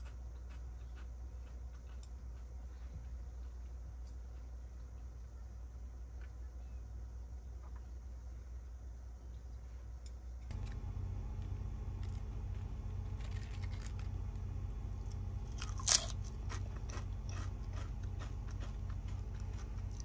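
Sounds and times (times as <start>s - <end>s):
potato chips crunching: 10.5s - 14.4s, 15.0s - 20.0s.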